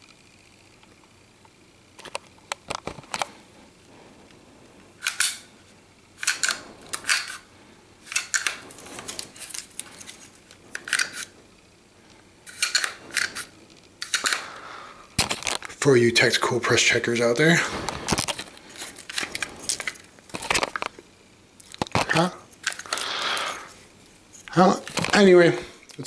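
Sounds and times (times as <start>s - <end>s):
pistol slide metallic clicks: 5.0s - 5.5s, 12.5s - 13.4s, 14.0s - 14.4s
pistol slide sliding rasps: 5.0s - 5.5s, 6.2s - 7.4s, 12.5s - 14.5s.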